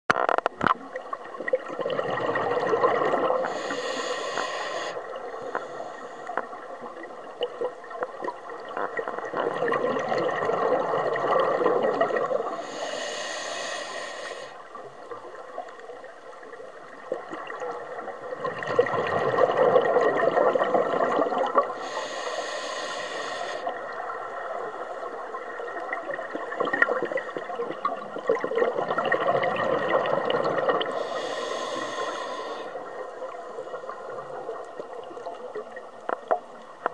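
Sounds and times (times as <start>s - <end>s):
bubbling scuba exhalations: 1.5s - 4.5s, 8.8s - 13.4s, 18.4s - 22.4s, 26.0s - 32.5s
hissing regulator inhalations: 3.4s - 6.7s, 12.5s - 14.8s, 21.7s - 23.9s, 30.8s - 33.7s.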